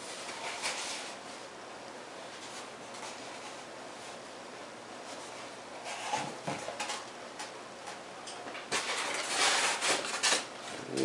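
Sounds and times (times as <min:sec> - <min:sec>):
foam parts and packing rustling: 0:08.7 - 0:10.5.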